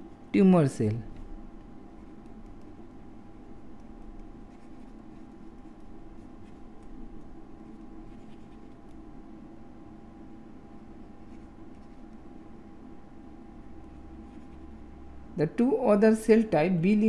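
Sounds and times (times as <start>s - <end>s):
low electrical hum: 0.0s - 17.0s
stylus scratching on tablet: 1.1s - 9.1s, 11.0s - 12.2s, 13.6s - 14.8s.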